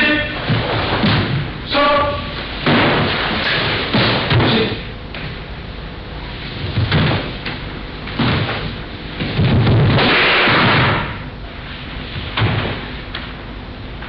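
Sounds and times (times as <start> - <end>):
wooden staffs striking: 2.6 - 4.8, 6.9 - 11.2.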